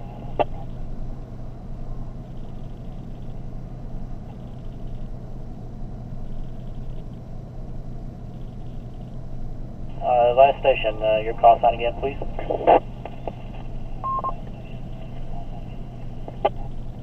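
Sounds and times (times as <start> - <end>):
vehicle idling rumble: 0.0 - 17.0
garbled two-way radio bursts: 10.0 - 17.0.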